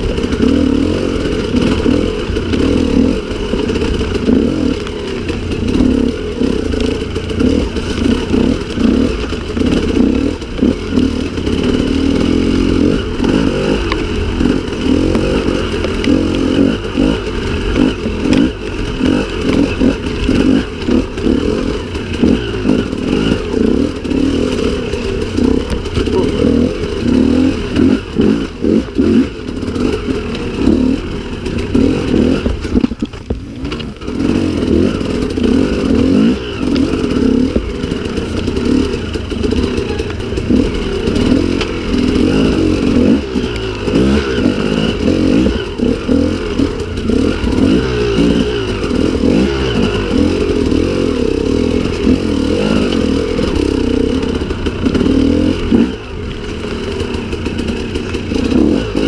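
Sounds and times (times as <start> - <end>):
motorcycle engine revving: 0.0 - 59.0
clattering over rocks: 31.3 - 34.4.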